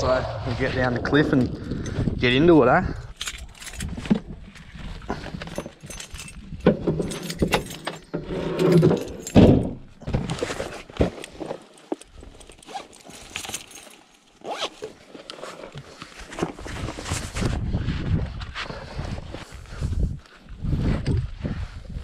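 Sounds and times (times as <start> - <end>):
bags rustling: 3.1 - 17.4
gear thump: 5.2 - 14.0.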